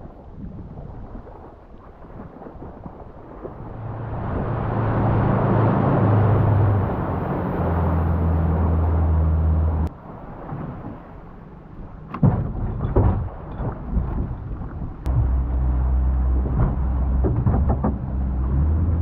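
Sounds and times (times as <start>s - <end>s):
wind: 0.0s - 19.0s
outboard motor humming: 3.5s - 9.9s, 15.1s - 19.0s.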